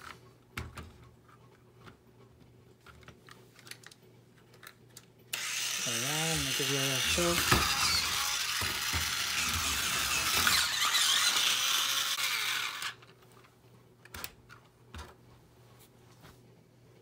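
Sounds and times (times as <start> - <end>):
small electric motor whirring: 5.3 - 13.0.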